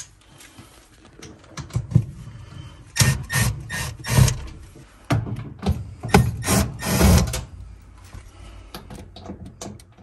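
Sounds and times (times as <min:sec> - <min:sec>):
cordless drill bursts: 0:06.1 - 0:07.2.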